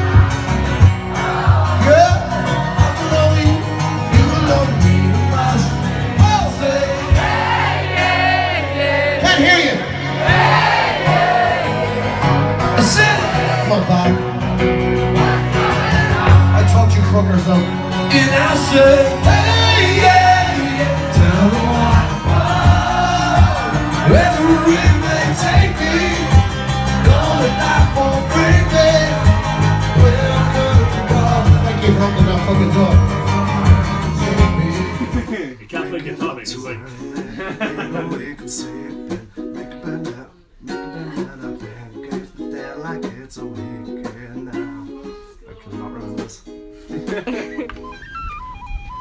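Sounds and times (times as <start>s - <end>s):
steady drum beat: 0.0s - 5.1s, 6.2s - 8.6s, 10.2s - 12.0s, 14.6s - 35.3s
bass guitar: 0.0s - 35.5s
electric guitar: 11.2s - 35.3s
person singing: 18.0s - 35.2s, 37.2s - 46.3s.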